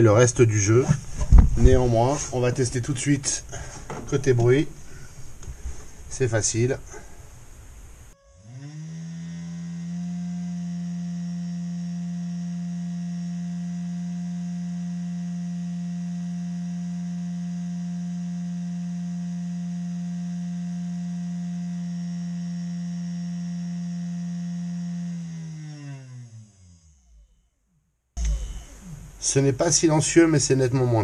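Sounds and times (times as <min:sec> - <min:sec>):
router spindle motor whining: 0:08.2 - 0:27.5, 0:28.2 - 0:29.3.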